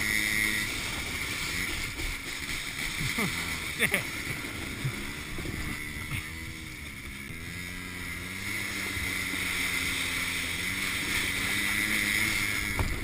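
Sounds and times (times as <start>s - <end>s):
distant quad bike engine: 0.0s - 13.0s
kayak hull sliding over snow: 0.0s - 13.0s.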